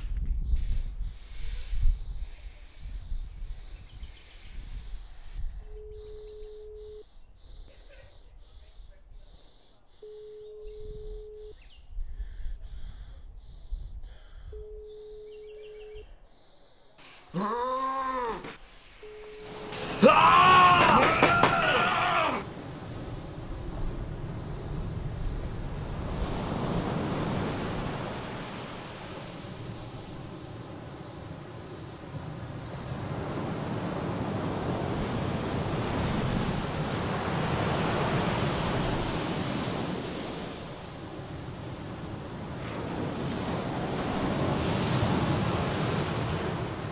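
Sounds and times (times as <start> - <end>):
telephone ringback tone: 5.7 - 7.0, 10.0 - 11.6, 14.5 - 16.0, 19.0 - 19.8
surf breaking on sandy beach: 18.1 - 46.9.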